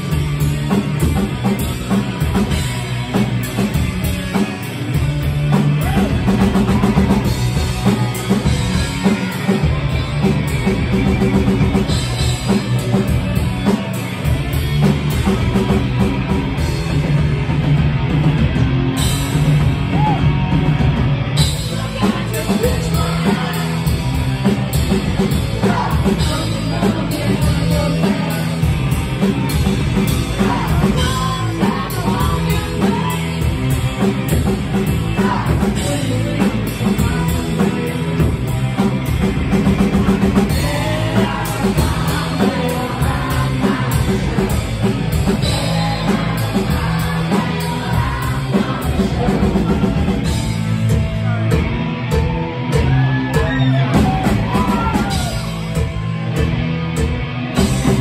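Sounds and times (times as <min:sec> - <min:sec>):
punk band playing: 0:00.0 - 0:58.0
shouted vocals: 0:05.7 - 0:10.3, 0:19.8 - 0:20.5, 0:51.2 - 0:55.7.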